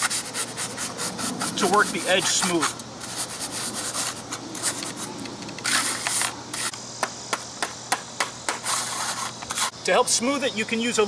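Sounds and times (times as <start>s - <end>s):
trowel scraping asphalt: 0.0s - 6.8s, 8.5s - 9.8s.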